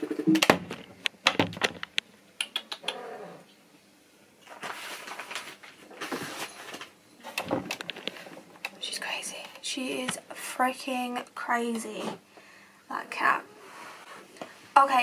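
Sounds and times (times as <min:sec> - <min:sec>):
sharp clicks: 0:01.8 - 0:03.0.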